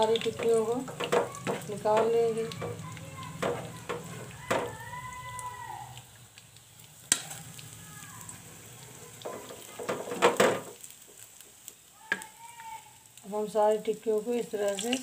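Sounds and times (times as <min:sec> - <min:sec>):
skimmer scraping and knocking pan: 0:00.0 - 0:04.7
food sizzling in oil: 0:00.0 - 0:15.0.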